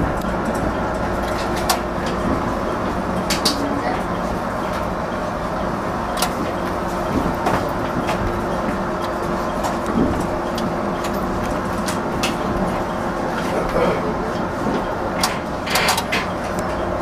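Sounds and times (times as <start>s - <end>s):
electric train rumbling: 0.0s - 17.0s
sharp clicks and creaks: 5.6s - 6.8s, 7.4s - 16.8s.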